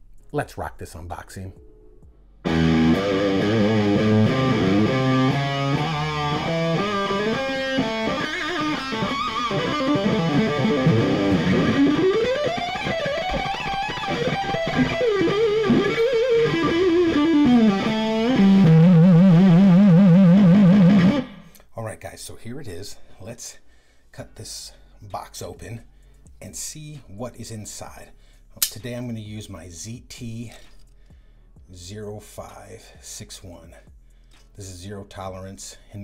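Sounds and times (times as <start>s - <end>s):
electric guitar rock music: 2.4s - 21.5s.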